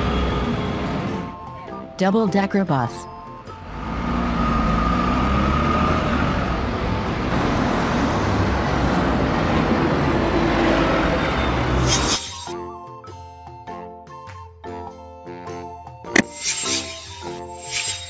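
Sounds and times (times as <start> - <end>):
road traffic noise: 0.0 - 1.4, 3.3 - 12.6
bus engine driving past: 3.5 - 12.1
high whine: 16.2 - 18.0.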